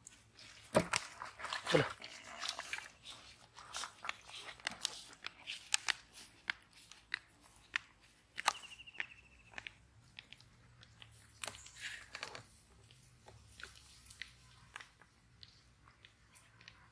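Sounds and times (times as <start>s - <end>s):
footsteps through dry grass: 0.0s - 9.7s.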